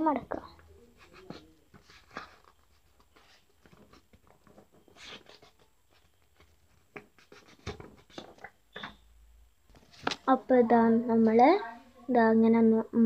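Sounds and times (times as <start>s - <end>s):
paper rustling and crinkling: 1.0s - 8.5s.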